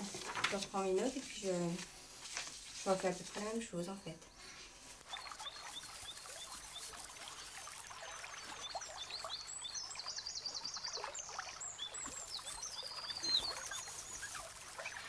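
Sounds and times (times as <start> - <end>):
faint scuffling: 0.0 - 3.7
otter cubs chirping: 5.0 - 15.0.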